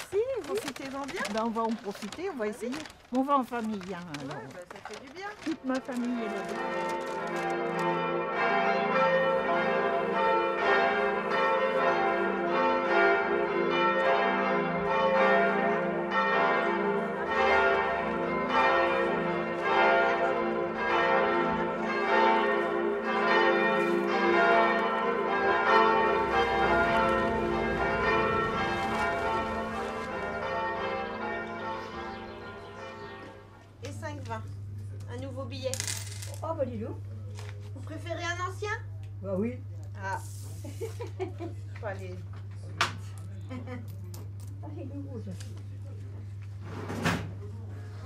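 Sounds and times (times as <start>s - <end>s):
church bells ringing: 0.0s - 35.6s.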